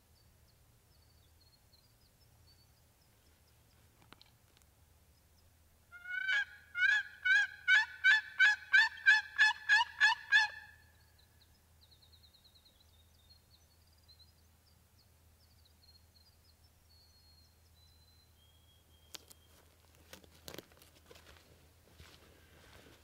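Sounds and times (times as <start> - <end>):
turkey call yelps: 5.9 - 10.8.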